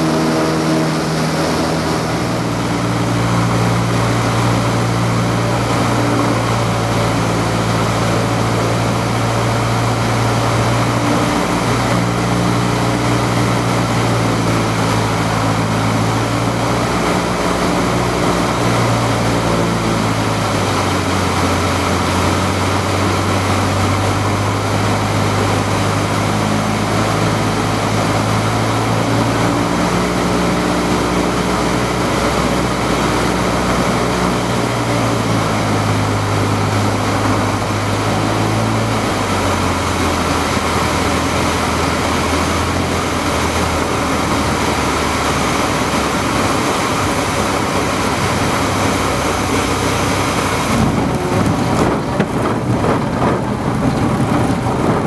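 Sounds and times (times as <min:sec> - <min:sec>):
light aircraft engine drone: 0:00.0 - 0:55.0
rushing air noise: 0:00.0 - 0:55.0.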